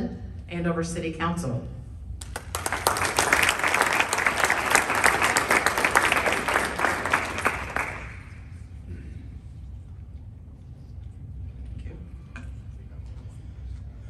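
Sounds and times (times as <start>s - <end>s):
audience applauding: 2.2s - 8.6s.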